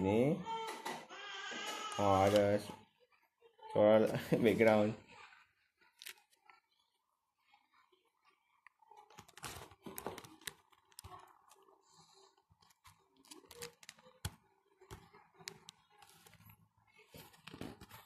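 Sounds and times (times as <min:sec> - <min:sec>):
faint clicks and taps: 0:08.2 - 0:18.0
paper rustling: 0:09.0 - 0:18.0.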